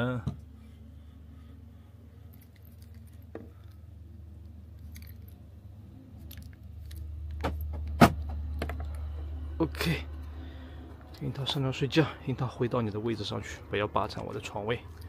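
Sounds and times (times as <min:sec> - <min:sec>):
steady low hum: 0:00.0 - 0:15.0
car keys jangling: 0:02.3 - 0:03.8, 0:04.7 - 0:05.4, 0:06.2 - 0:07.7.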